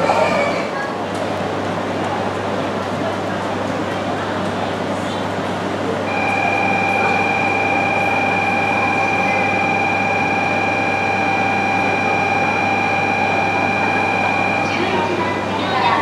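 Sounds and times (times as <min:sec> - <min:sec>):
train running hum: 0:00.0 - 0:16.0
electronic ringing tone: 0:06.1 - 0:15.3.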